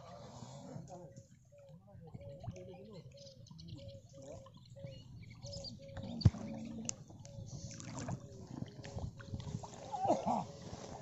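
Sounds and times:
water sloshing and splashing: 6.0 - 11.0.

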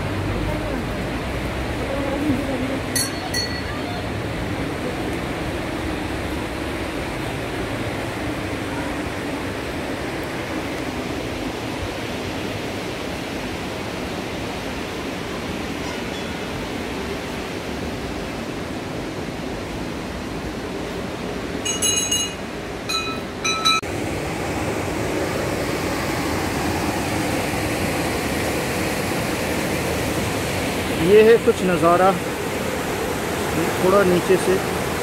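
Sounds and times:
river flowing over boulders: 0.0 - 35.0
ringing metallic clinks: 3.0 - 3.8, 21.6 - 23.8.

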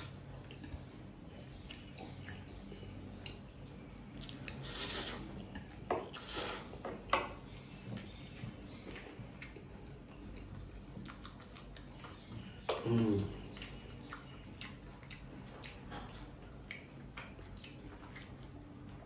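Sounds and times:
wet chewing: 0.0 - 19.0
person slurping noodles: 4.6 - 5.3.

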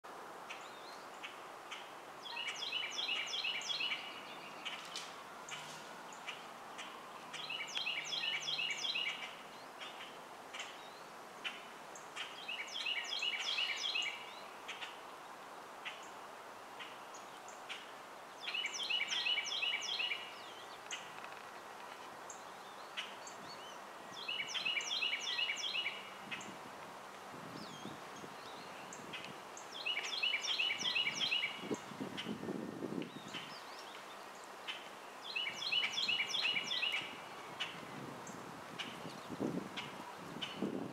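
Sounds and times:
bird song of repeated notes: 0.4 - 26.6, 27.4 - 40.9
bird chirps: 27.6 - 32.4, 34.7 - 37.8.

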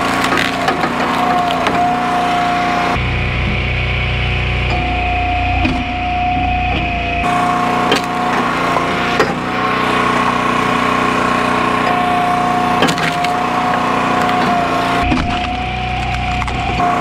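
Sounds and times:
wood splitting cracks: 0.0 - 2.4, 7.7 - 10.3, 11.7 - 16.9
small gas engine running: 0.0 - 17.0.

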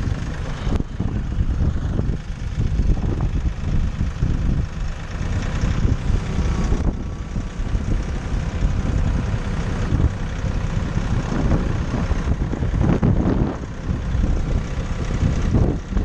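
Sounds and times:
tractor diesel engine running: 0.0 - 16.0
wind rumbling on microphone: 0.0 - 16.0.

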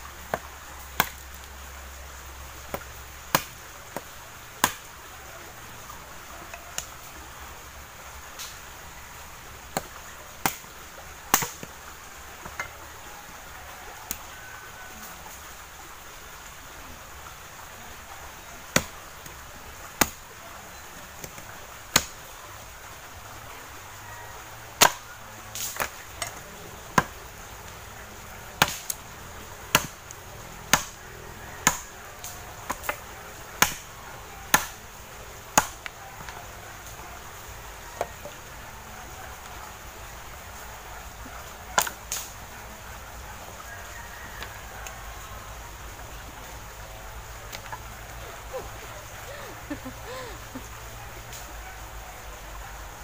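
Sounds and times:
machete chopping wood: 0.3 - 1.3, 2.7 - 4.9, 9.7 - 10.7, 11.3 - 11.7, 18.7 - 19.4, 20.0 - 20.2, 21.2 - 22.2, 24.8 - 27.2, 28.6 - 29.0, 29.7 - 30.1, 30.7 - 31.0, 31.6 - 33.0, 33.6 - 33.9, 34.5 - 34.8, 35.5 - 36.3, 41.8 - 42.3.

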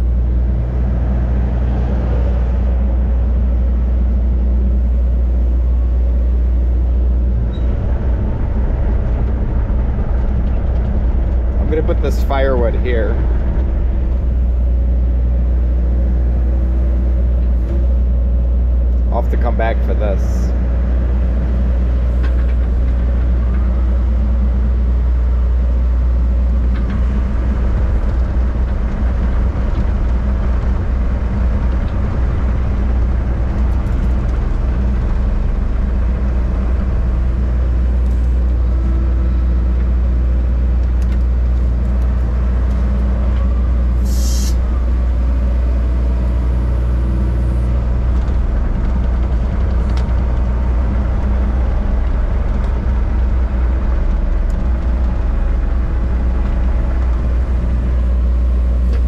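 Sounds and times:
diesel engine running: 0.0 - 59.0
short hiss: 44.1 - 44.6.

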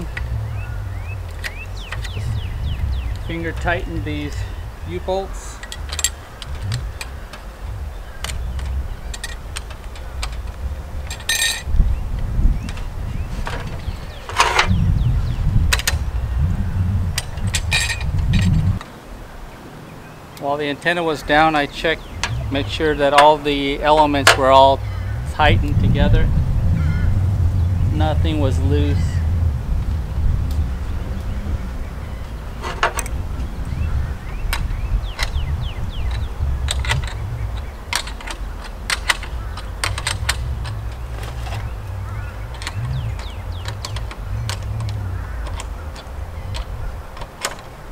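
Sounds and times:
steady low rumble: 0.0 - 47.9
u-bolt clicking: 34.5 - 47.9.

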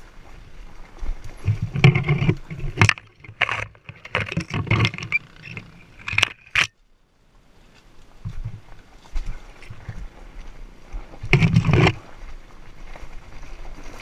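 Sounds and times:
branches scraping: 0.9 - 6.8, 7.6 - 14.0
dirt bike rattling over rocks: 1.3 - 6.8, 11.2 - 12.1.

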